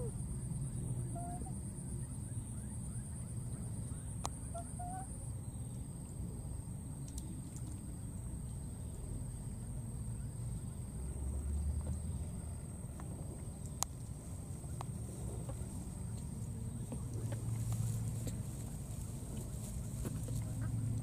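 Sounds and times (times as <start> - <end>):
steady low rumble: 7.7 - 21.0.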